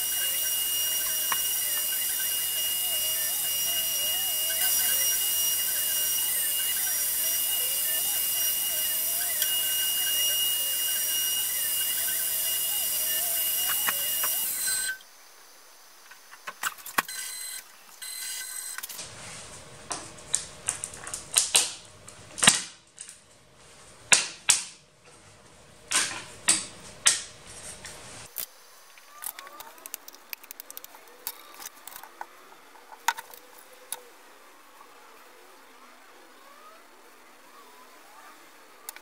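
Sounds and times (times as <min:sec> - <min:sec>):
loud steady machine noise: 0:00.0 - 0:15.0.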